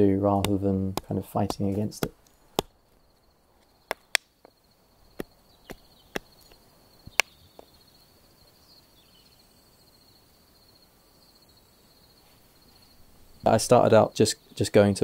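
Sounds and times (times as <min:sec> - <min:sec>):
axe chopping wood: 0:00.4 - 0:02.8, 0:03.9 - 0:04.5, 0:05.1 - 0:07.7.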